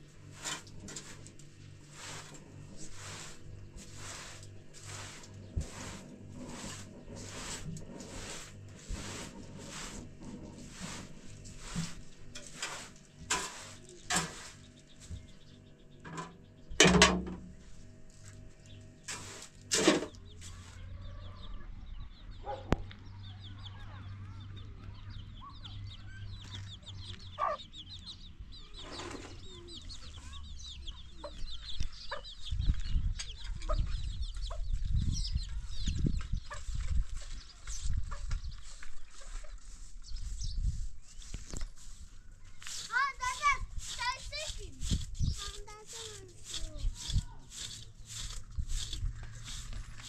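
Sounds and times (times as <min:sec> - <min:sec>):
chickens clucking: 0:20.1 - 0:47.2.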